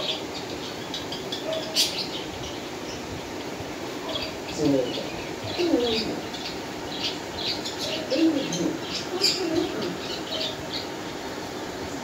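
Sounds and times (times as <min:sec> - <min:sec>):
pigeon cooing: 0:05.5 - 0:06.3, 0:07.8 - 0:10.6.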